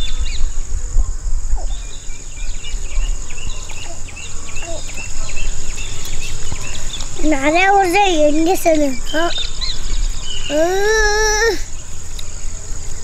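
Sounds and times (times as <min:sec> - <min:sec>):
insects buzzing: 0:00.0 - 0:13.0
bird chirps: 0:01.5 - 0:13.0.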